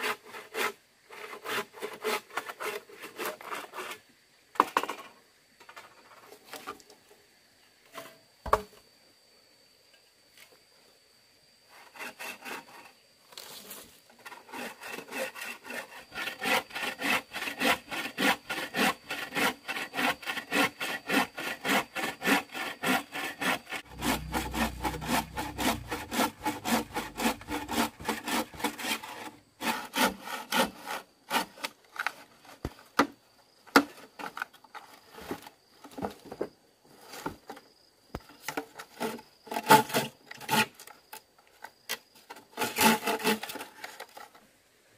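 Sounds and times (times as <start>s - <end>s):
hand saw cutting wood: 0.0s - 4.0s, 11.8s - 13.0s, 14.2s - 32.7s, 38.9s - 40.9s, 42.5s - 44.1s.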